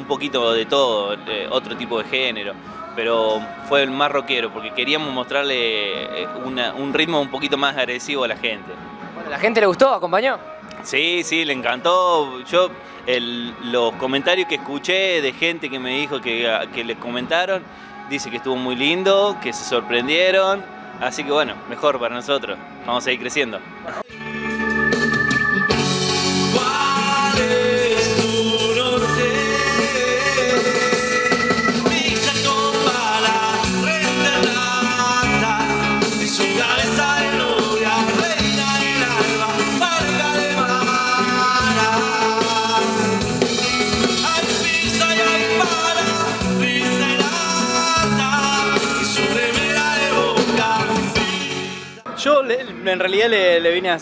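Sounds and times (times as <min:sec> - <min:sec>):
live rock band playing: 0:24.0 - 0:52.1.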